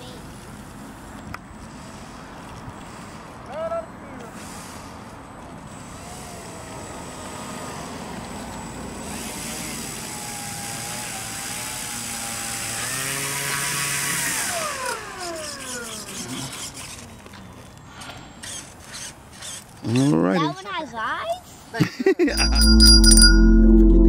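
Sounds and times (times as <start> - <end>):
electric motor and propeller whine: 6.1 - 16.3.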